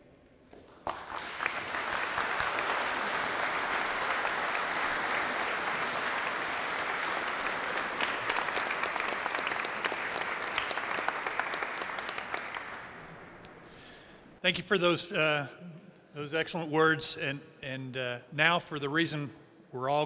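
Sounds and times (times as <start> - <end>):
audience applause: 0.7 - 13.5.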